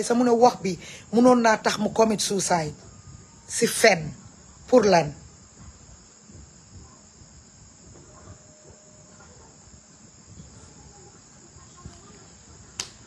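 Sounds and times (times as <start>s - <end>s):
crickets chirping: 0.0s - 13.0s
sharp click: 12.8s - 13.0s.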